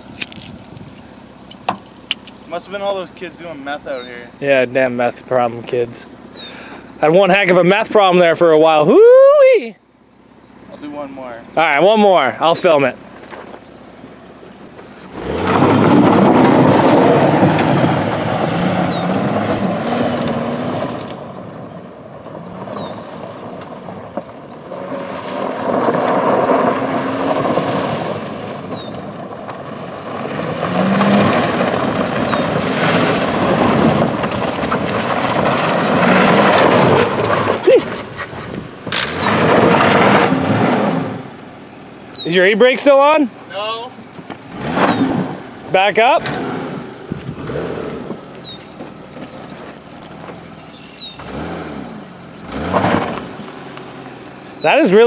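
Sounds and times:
tyres spinning on gravel: 10.2s - 55.0s
car engine revving hard: 15.1s - 21.2s, 24.6s - 29.0s, 29.9s - 42.2s, 42.8s - 49.7s, 50.7s - 55.0s.

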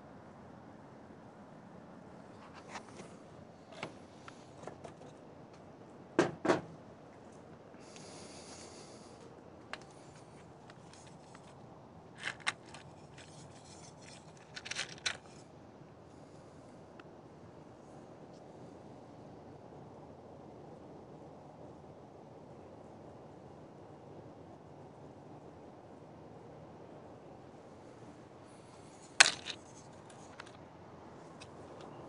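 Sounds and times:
short rustle: 7.3s - 15.5s
clicks and knocks of small objects: 12.2s - 15.4s, 29.0s - 30.6s.

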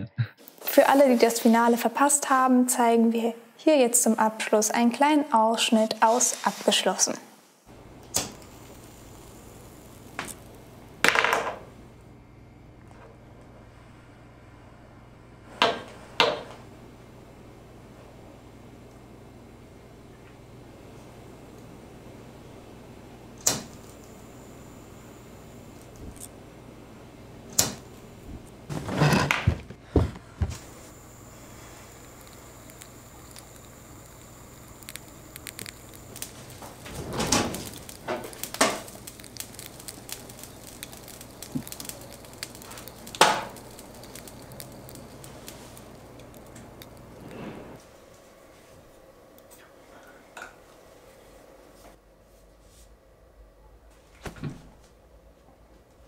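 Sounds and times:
low steady hum: 7.7s - 56.0s
household objects knocking and clattering: 28.7s - 30.6s.

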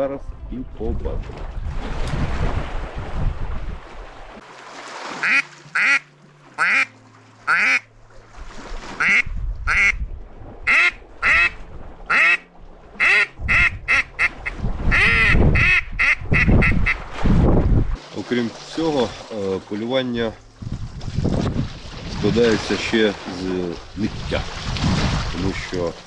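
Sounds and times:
low wind rumble: 0.0s - 4.4s, 8.0s - 18.0s, 20.2s - 22.9s
duck call quacks: 5.2s - 6.0s, 6.6s - 6.9s, 7.5s - 7.8s, 9.0s - 10.0s, 10.7s - 12.4s, 13.0s - 17.0s.

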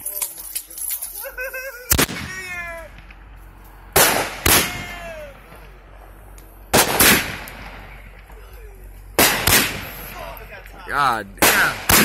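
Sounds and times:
firework bangs: 1.9s - 3.3s, 3.9s - 5.8s, 6.7s - 8.4s, 9.2s - 10.3s, 11.4s - 12.0s.

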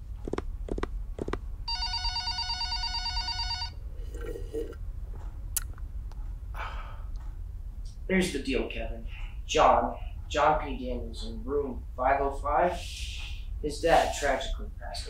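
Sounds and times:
electronic telephone ring: 1.7s - 3.8s.

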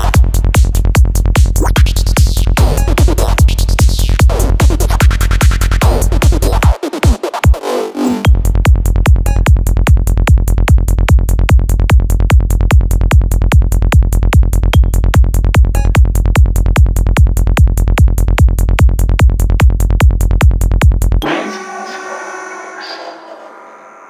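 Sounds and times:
electronic kick drum and bass: 0.0s - 21.3s
synth layers: 21.2s - 24.0s.

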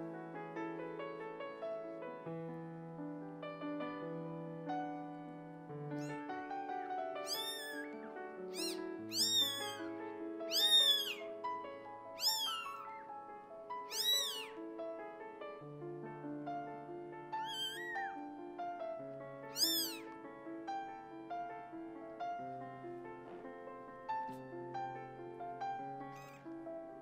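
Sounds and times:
soft piano music: 0.0s - 27.0s
kitten mewing: 6.0s - 6.2s, 7.2s - 9.8s, 10.5s - 11.2s, 12.2s - 13.1s, 13.8s - 14.5s, 17.4s - 18.2s, 19.5s - 20.1s, 26.2s - 26.4s.

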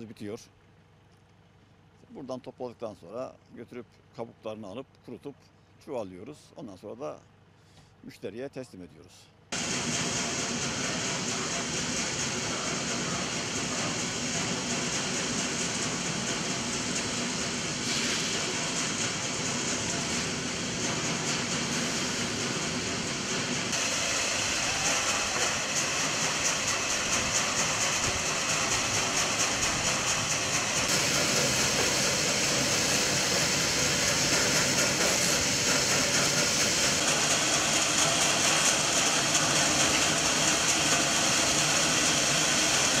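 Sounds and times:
sorting machinery running: 9.6s - 43.0s.

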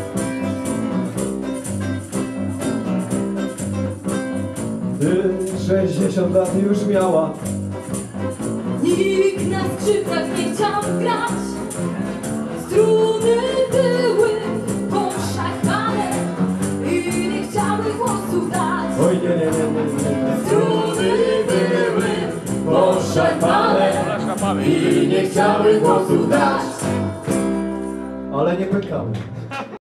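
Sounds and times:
hand percussion beat: 0.0s - 28.2s
acoustic guitars strumming: 0.0s - 29.7s
person singing: 16.8s - 26.9s.

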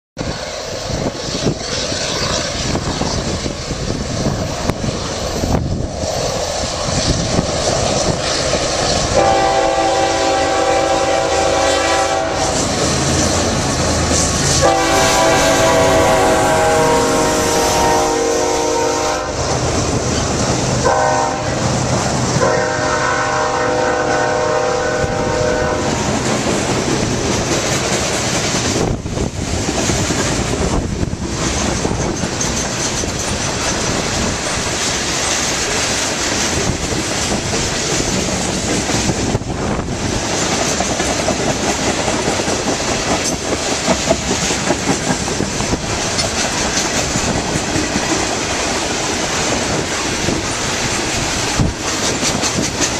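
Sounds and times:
freight train rolling past: 0.2s - 52.9s
train air horn: 9.0s - 12.9s, 14.4s - 19.6s, 20.8s - 26.1s.

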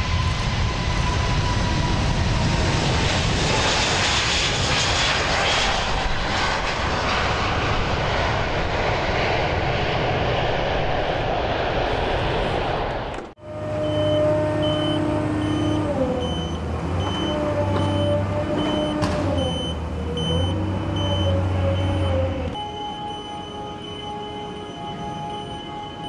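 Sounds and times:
high warning beeper: 13.4s - 26.0s.

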